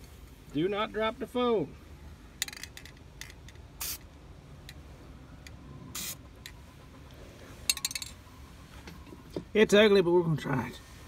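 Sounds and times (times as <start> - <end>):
spray paint can hissing: 3.8 - 4.1, 5.9 - 6.2.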